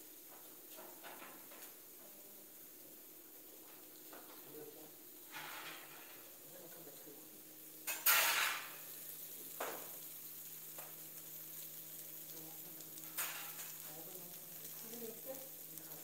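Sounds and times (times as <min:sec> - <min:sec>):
skewers sizzling on grill pan: 0:00.0 - 0:16.0.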